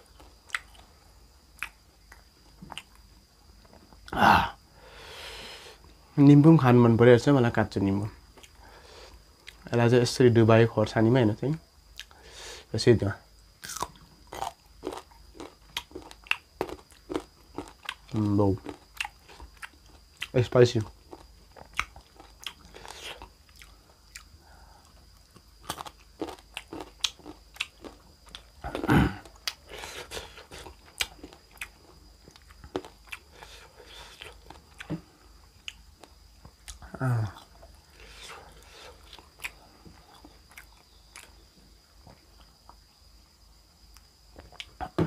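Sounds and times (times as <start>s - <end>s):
person chewing crisp food: 0.0s - 1.0s, 1.6s - 3.1s, 13.6s - 41.4s.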